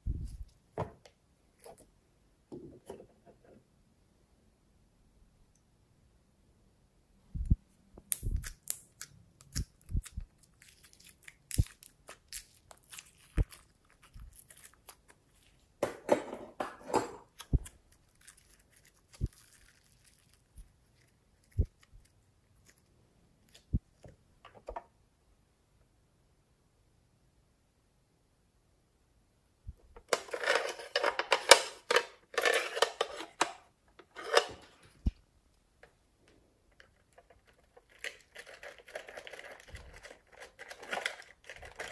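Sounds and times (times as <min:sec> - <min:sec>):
slime popping and crackling: 0:08.1 - 0:15.3.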